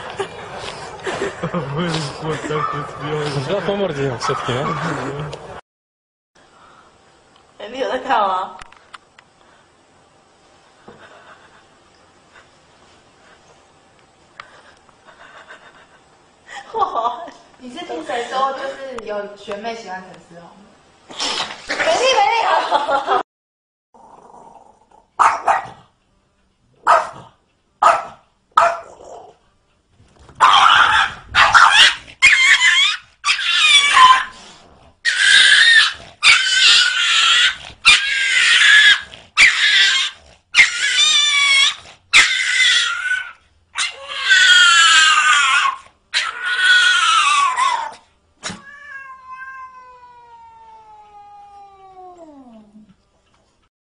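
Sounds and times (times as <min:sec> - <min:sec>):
cat yowling: 0:30.4 - 0:34.3, 0:35.1 - 0:52.7.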